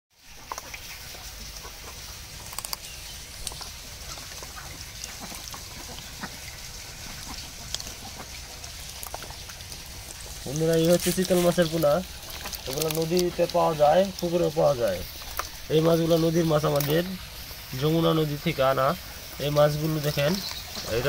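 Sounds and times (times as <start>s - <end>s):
fish slapping wet in water: 0.2s - 17.7s
steady background noise: 0.2s - 21.0s
small clicks: 2.4s - 3.7s.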